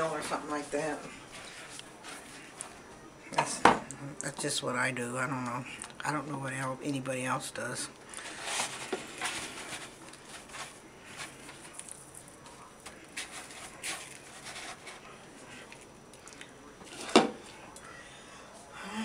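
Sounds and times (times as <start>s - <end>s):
dry crumbs rustling and crunching: 0.5s - 2.8s, 8.0s - 17.7s.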